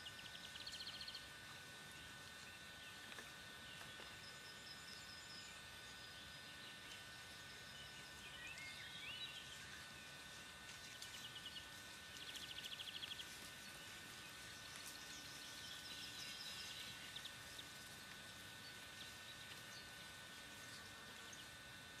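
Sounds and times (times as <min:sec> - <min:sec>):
thin high-pitched whine: 0:00.0 - 0:22.0
birds chirping and trilling: 0:02.0 - 0:17.9.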